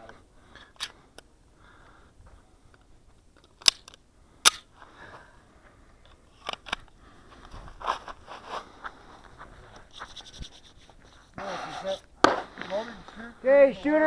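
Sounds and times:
pistol metallic clicks: 0:03.4 - 0:04.7.

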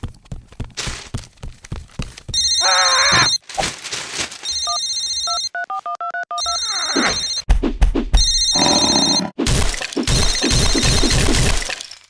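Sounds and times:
beeping ringtone melody: 0:04.5 - 0:07.5
phone ringing electronic trill: 0:04.5 - 0:07.5, 0:08.2 - 0:09.3.

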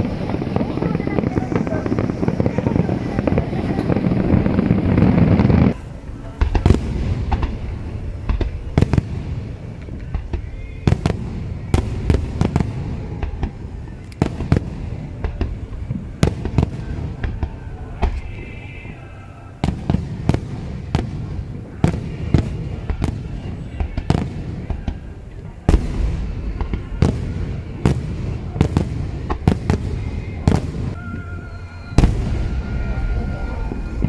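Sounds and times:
low rumble of reports: 0:00.0 - 0:34.0.

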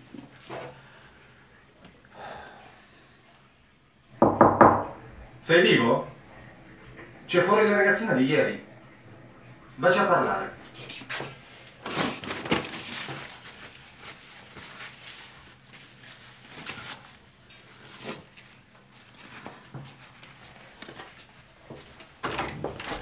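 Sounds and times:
paper towel rustling and crumpling: 0:06.0 - 0:23.0.

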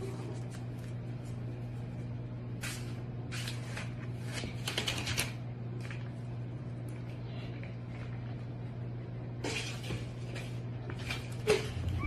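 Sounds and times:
cat scuffling on tile floor: 0:00.0 - 0:06.2, 0:09.4 - 0:12.0
low hum: 0:11.5 - 0:12.0.

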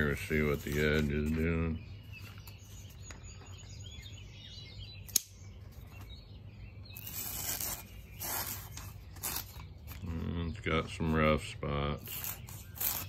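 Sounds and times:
faint bird chirps: 0:00.0 - 0:13.0
newspaper rustling: 0:07.0 - 0:11.1, 0:12.0 - 0:13.0.

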